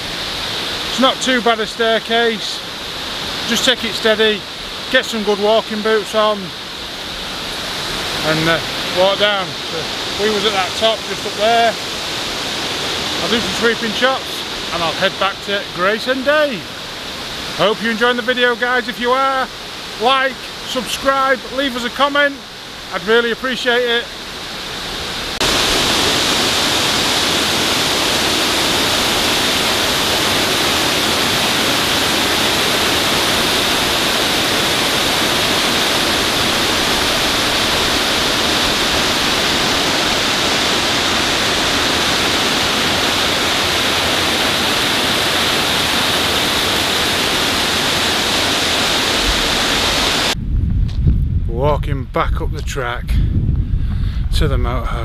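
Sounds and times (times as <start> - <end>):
waterfall rushing: 0.0 - 50.4.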